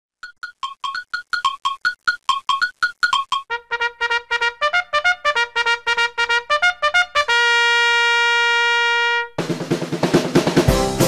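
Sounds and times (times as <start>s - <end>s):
intro music: 9.4s - 11.0s.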